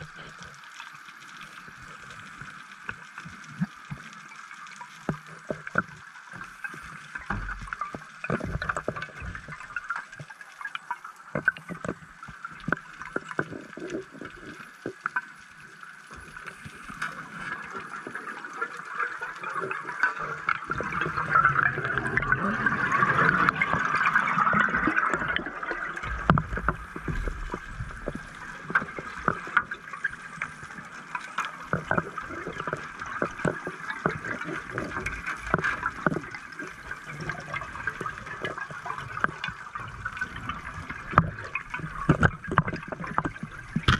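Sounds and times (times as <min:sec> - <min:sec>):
diver's exhaled bubbles gushing: 0:00.0 - 0:00.6, 0:16.1 - 0:43.9
sharp underwater clicks: 0:19.0 - 0:43.9.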